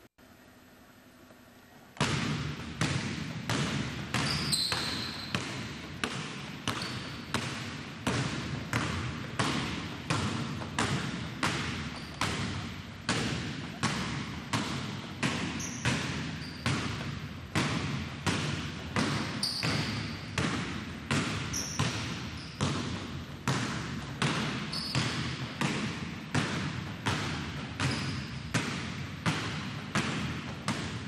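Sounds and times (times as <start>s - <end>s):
basketballs bouncing on gym floor: 2.0s - 31.0s
faint high squeaks: 4.2s - 5.4s.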